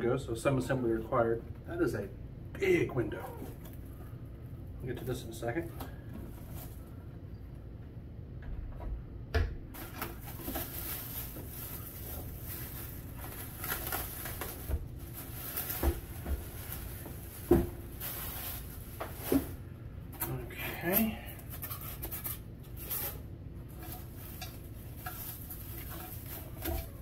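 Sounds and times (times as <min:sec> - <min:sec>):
plastic bag crinkling: 0:09.8 - 0:19.6, 0:20.8 - 0:27.0.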